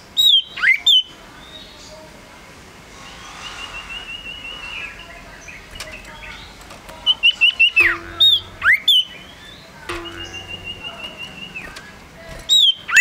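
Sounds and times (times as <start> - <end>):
bird trilling high notes: 2.9 - 12.0.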